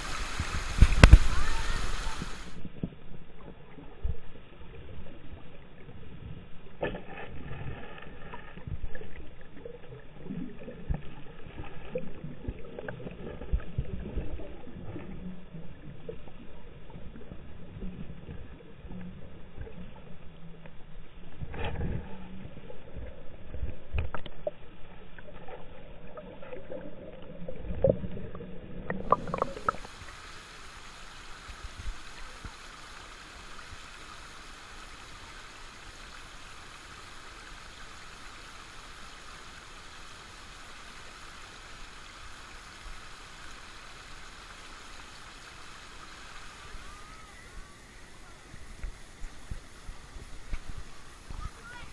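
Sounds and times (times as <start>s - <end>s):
water rushing over rock: 0.0s - 3.2s, 25.4s - 51.9s
muffled underwater sloshing: 0.0s - 36.8s.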